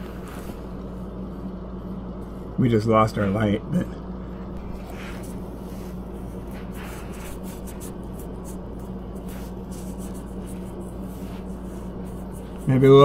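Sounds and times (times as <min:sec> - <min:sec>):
steady low hum: 0:00.0 - 0:13.0
faint scraping and ticking: 0:04.5 - 0:13.0.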